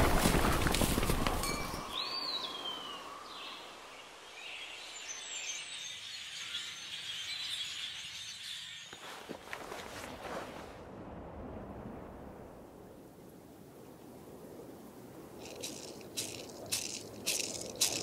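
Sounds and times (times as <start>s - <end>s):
horses galloping: 0.0s - 1.9s, 15.4s - 18.0s.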